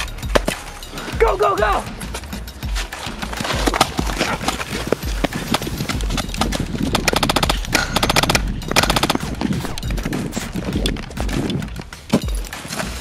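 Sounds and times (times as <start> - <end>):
rapid automatic gunfire: 6.9 - 9.8.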